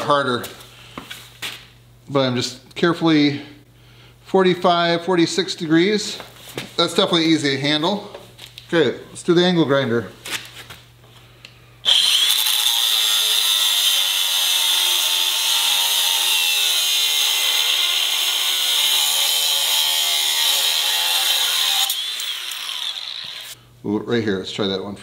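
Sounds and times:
angle grinder cutting steel: 11.9s - 23.6s.

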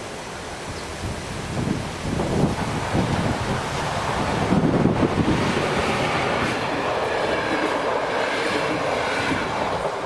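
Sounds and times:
train wheels rumbling and clattering: 2.2s - 10.0s.

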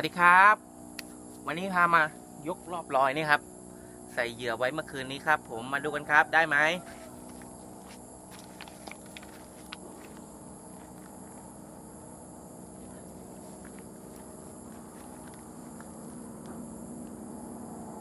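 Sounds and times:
low outdoor hum: 0.0s - 18.0s
footsteps on dry grass: 6.8s - 16.2s.

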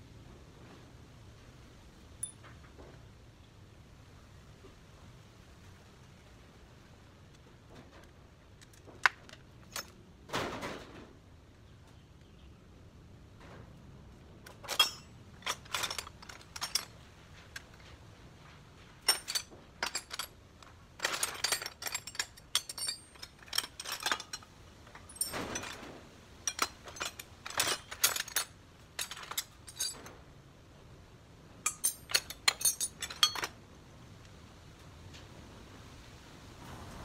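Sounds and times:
metal tools clinking: 8.7s - 10.0s, 14.5s - 17.9s, 19.0s - 30.2s, 31.6s - 33.6s.

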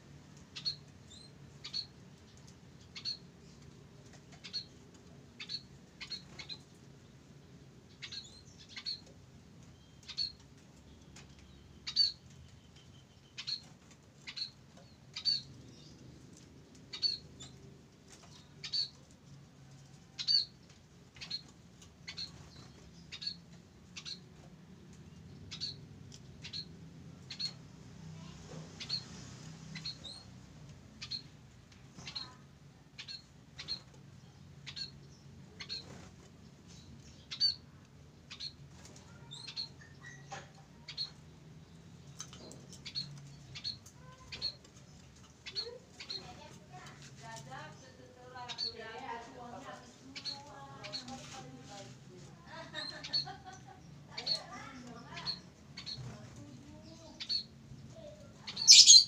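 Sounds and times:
birds giving high call notes: 58.5s - 59.0s.

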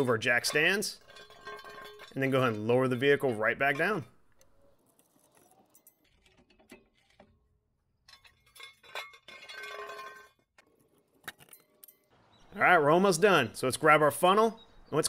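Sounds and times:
floor jack metallic clinks: 0.0s - 4.1s, 8.1s - 10.4s.

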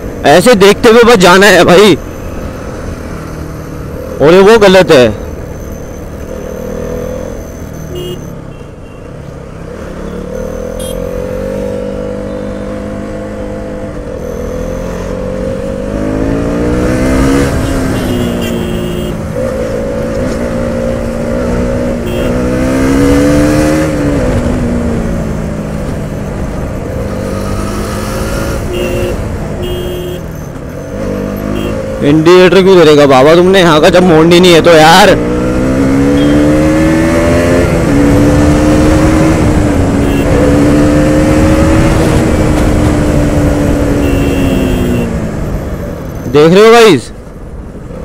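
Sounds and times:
motorcycle engine accelerating: 9.8s - 32.2s, 34.8s - 46.3s.

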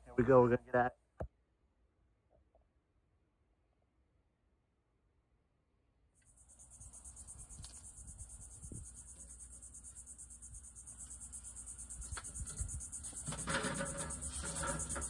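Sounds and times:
insects chorus pulsing: 6.2s - 15.0s.

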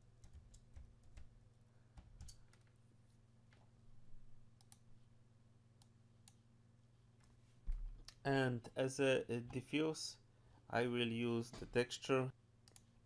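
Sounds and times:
low steady hum: 0.0s - 13.0s
keyboard and mouse clicks: 2.0s - 2.8s, 4.6s - 4.8s.

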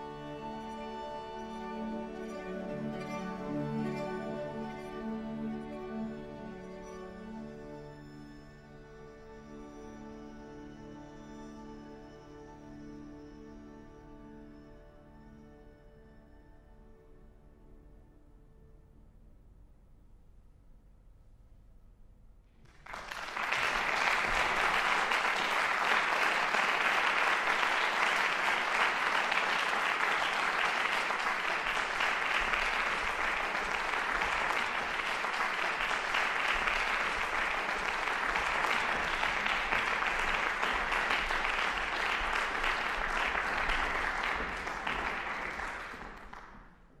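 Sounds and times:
audience applauding: 0.0s - 7.0s, 22.7s - 47.0s.

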